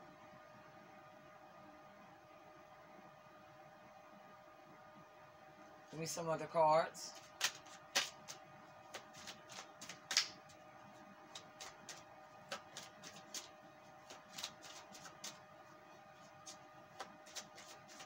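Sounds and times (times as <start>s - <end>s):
cards being shuffled: 7.1s - 10.6s, 11.3s - 15.4s, 16.2s - 18.0s.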